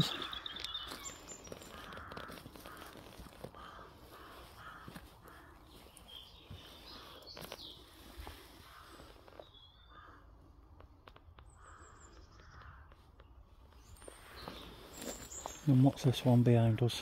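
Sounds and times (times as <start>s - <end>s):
crows cawing: 0.0s - 17.0s.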